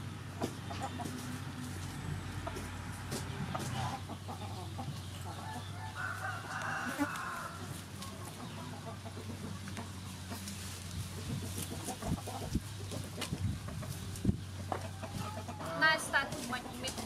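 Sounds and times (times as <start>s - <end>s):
chickens clucking: 0.0s - 17.0s
rooster crowing: 5.4s - 7.8s.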